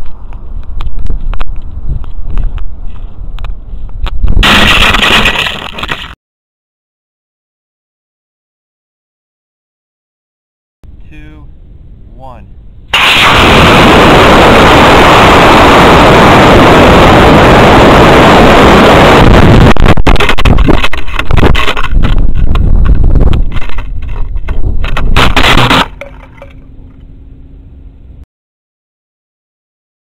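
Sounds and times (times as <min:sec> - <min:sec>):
wind buffeting microphone: 0:00.0 - 0:04.5, 0:13.0 - 0:25.7
rocket motor thrust roar: 0:12.9 - 0:22.6, 0:23.2 - 0:26.8.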